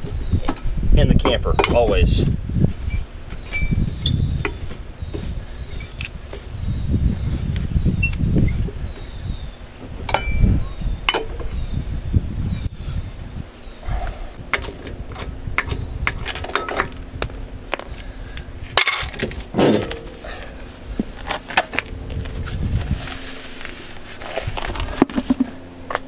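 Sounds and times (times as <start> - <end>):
metallic clinks of lug nuts: 14.5 - 17.0, 17.7 - 18.1.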